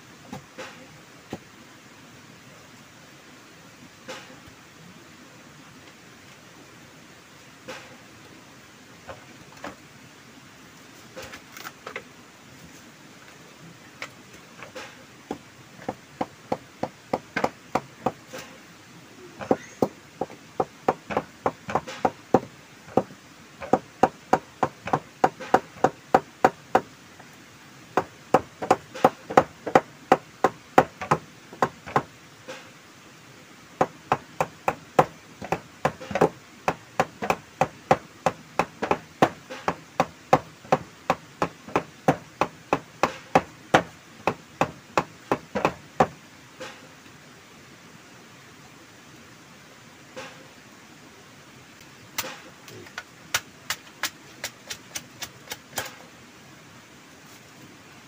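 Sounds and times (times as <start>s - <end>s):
tool chopping wooden pole: 14.6s - 18.5s, 19.4s - 26.9s, 28.0s - 32.6s, 33.8s - 46.8s, 52.2s - 56.0s.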